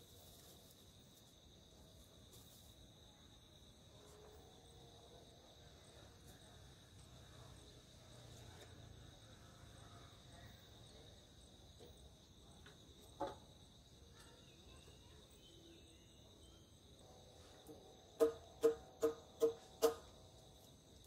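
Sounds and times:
high-pitched insect trill: 0:00.0 - 0:21.0
knock: 0:13.2 - 0:13.4, 0:18.2 - 0:20.0.

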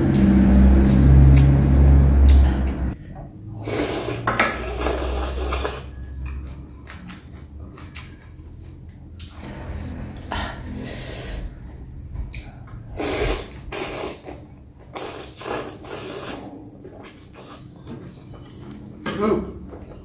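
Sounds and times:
wet noodle slurping: 0:03.6 - 0:06.0, 0:12.9 - 0:17.8
chewing: 0:04.6 - 0:09.4.

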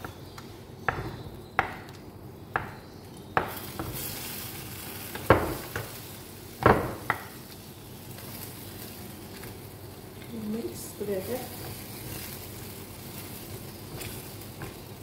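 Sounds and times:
light sizzling hiss: 0:03.4 - 0:15.0.

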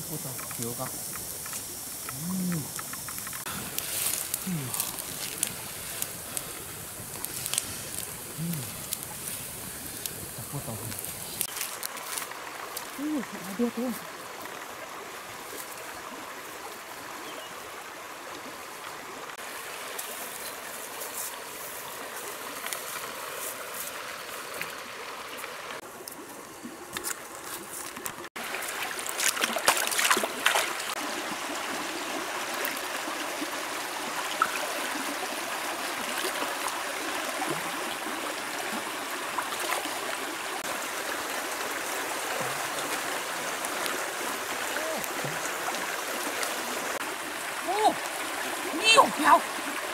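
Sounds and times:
shallow stream running: 0:00.0 - 0:49.9
bare feet splashing in water: 0:26.9 - 0:31.0.

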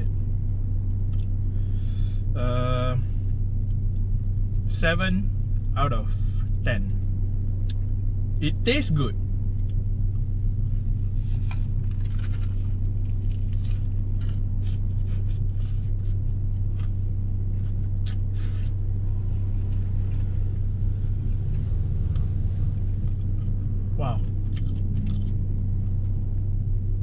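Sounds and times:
car idling hum: 0:00.0 - 0:27.0
person chewing crunchy food: 0:11.1 - 0:18.8, 0:21.3 - 0:26.2.

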